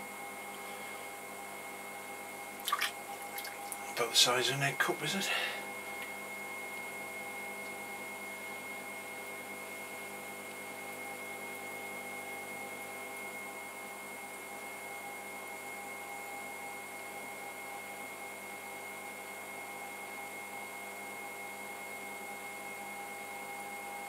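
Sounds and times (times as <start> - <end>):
pottery wheel humming: 0.0 - 14.8.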